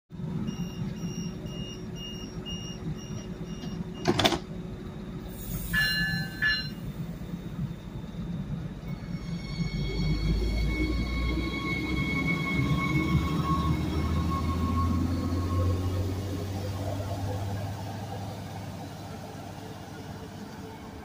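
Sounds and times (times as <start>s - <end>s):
diesel train idling: 0.2s - 21.0s
door warning beeps: 0.5s - 4.4s
sliding door shutting thud: 4.0s - 4.5s.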